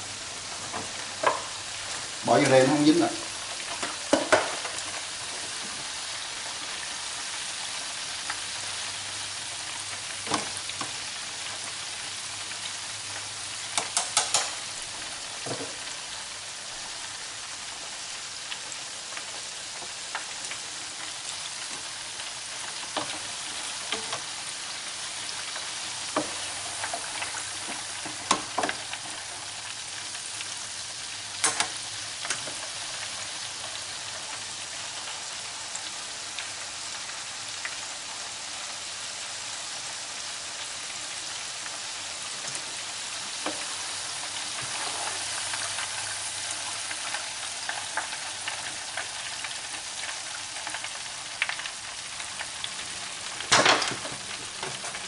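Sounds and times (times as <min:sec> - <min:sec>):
oil bubbling in deep fryer: 0:00.0 - 0:55.0
sharp clicks and knocks: 0:13.8 - 0:14.6.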